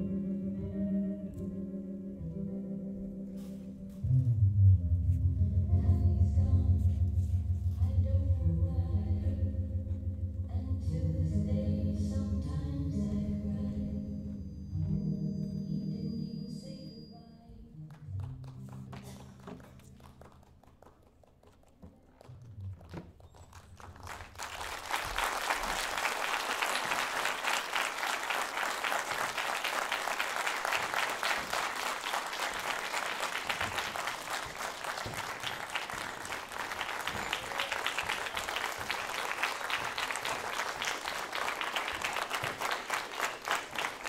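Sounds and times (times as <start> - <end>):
audience applauding: 17.9 - 44.0.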